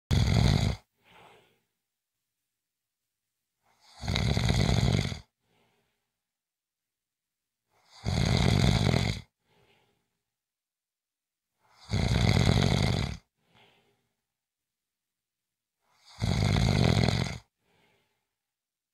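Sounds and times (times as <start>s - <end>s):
person snoring: 0.1s - 1.6s, 3.7s - 5.8s, 7.8s - 10.0s, 11.6s - 14.0s, 15.9s - 18.1s
faint short breath: 1.0s - 1.7s, 5.4s - 6.1s, 9.4s - 10.2s, 13.4s - 14.2s, 17.6s - 18.4s.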